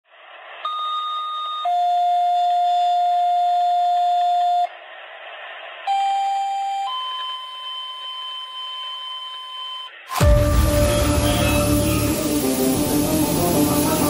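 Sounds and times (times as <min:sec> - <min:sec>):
two-tone pager alert: 0:00.7 - 0:04.7, 0:05.9 - 0:10.0
radio static: 0:10.1 - 0:14.0.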